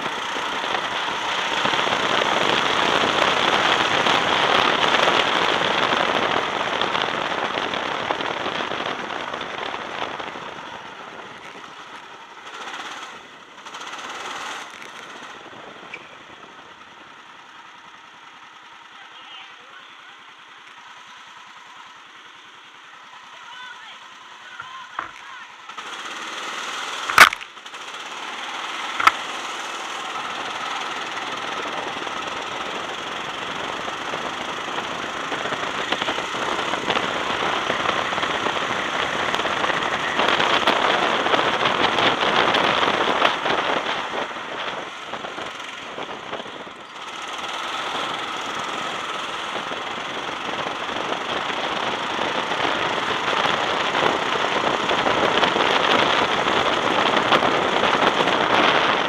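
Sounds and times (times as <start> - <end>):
wind noise: 0.0 - 12.3, 30.2 - 59.0
go-kart engine running: 0.0 - 59.0
rattle: 24.6 - 59.0.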